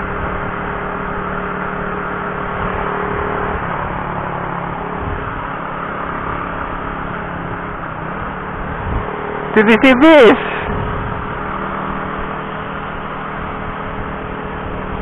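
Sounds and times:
motorcycle engine cruising: 0.0s - 15.0s
wind on microphone: 8.2s - 9.2s, 10.6s - 11.4s.

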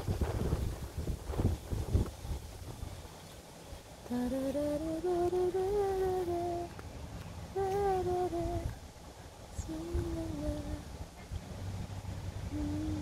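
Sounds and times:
person humming a slow tune: 4.1s - 6.8s, 7.5s - 8.8s, 9.6s - 10.9s, 12.4s - 13.0s.

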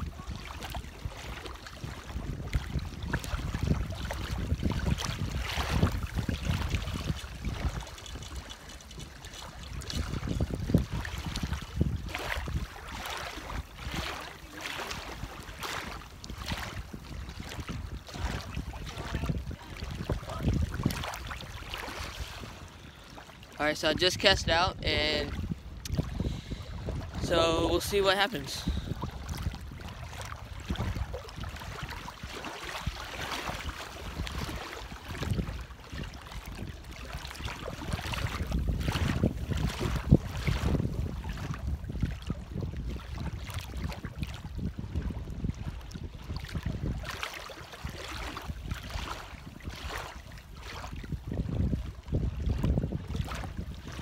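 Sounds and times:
small waves lapping at shore: 0.0s - 54.0s
wind buffeting microphone: 0.0s - 54.0s.

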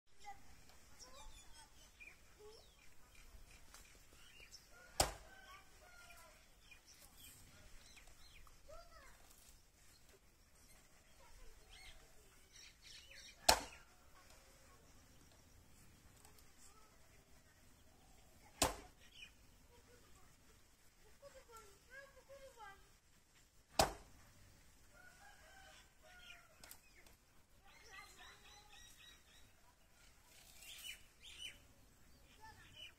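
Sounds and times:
birds chirping faintly: 0.1s - 32.9s
sharp knock: 13.5s - 13.8s, 18.6s - 18.9s, 23.7s - 24.1s.

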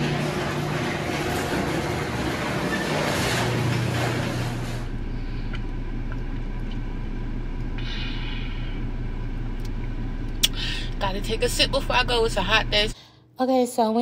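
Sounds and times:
garage door going up: 0.0s - 5.0s
car engine idling: 4.6s - 13.0s.

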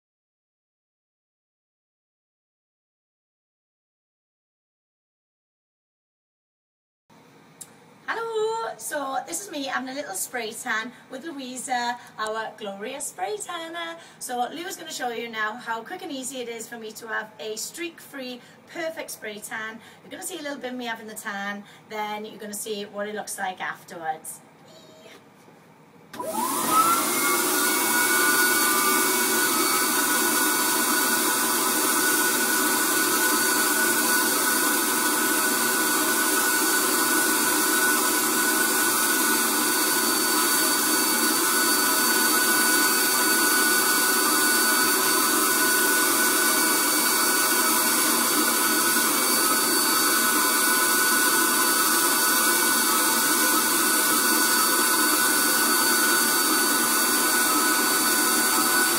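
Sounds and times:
spray tan machine blower whine: 26.2s - 58.9s.

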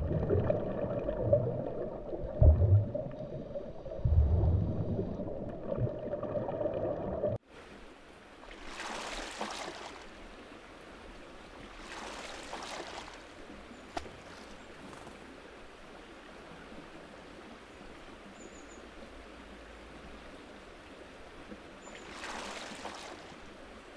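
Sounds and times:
rumbling water with low thuds: 0.0s - 7.4s
oars splashing: 8.5s - 10.2s, 11.7s - 15.2s, 21.9s - 23.5s.

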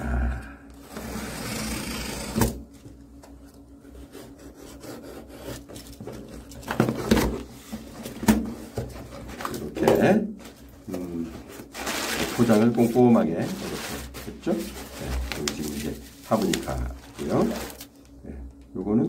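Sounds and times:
cardboard flaps knocking and rustling: 6.0s - 10.1s.

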